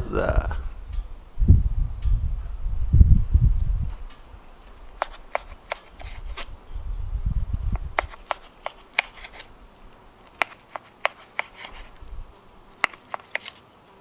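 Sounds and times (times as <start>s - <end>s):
knife and fork clicking on board: 5.0s - 6.4s, 7.9s - 9.5s, 10.2s - 11.9s, 12.8s - 13.6s.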